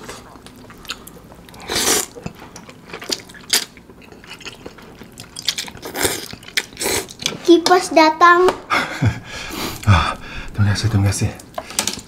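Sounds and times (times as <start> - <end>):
wet chewing: 0.1 - 7.4.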